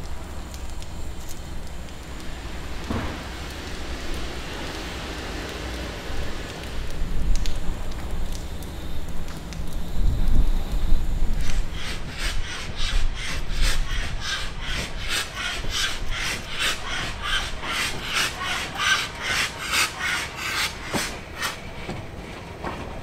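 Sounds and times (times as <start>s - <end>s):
steam locomotive chuffing: 11.4s - 23.0s.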